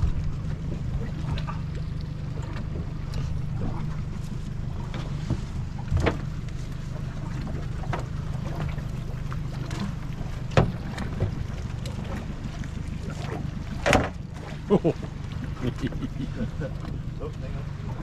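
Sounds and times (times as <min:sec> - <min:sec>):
outboard motor idling: 0:00.0 - 0:18.0
knocks against boat hull: 0:10.5 - 0:11.4.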